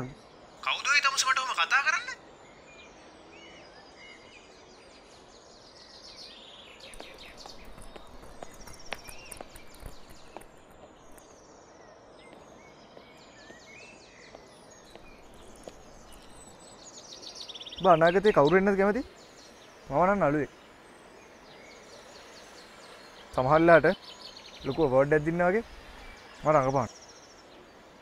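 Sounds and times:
birds chirping: 0:00.0 - 0:28.0
steady background hiss: 0:00.0 - 0:28.0
faint clicks: 0:06.8 - 0:11.3.

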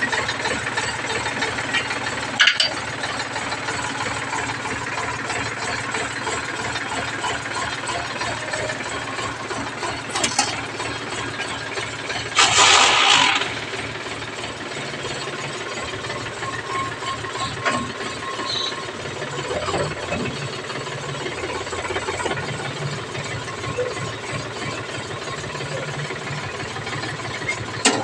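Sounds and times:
tractor diesel engine idling: 0:00.0 - 0:28.0.

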